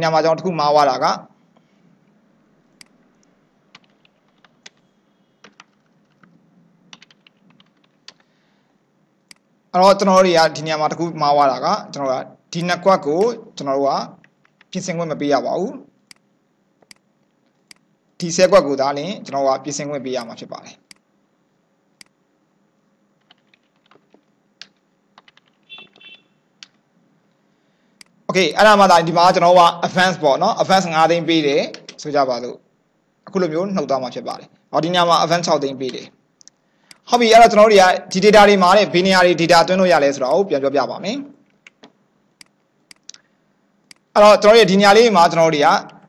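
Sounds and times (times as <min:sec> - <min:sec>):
computer keyboard clicks: 0:03.7 - 0:08.3, 0:23.2 - 0:26.8
high-pitched clicks: 0:09.3 - 0:09.5, 0:16.1 - 0:17.9, 0:41.5 - 0:44.1.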